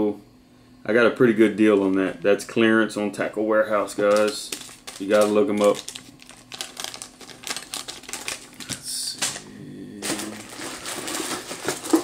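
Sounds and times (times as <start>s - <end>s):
plastic packaging crinkling: 3.8s - 9.4s, 10.0s - 12.0s.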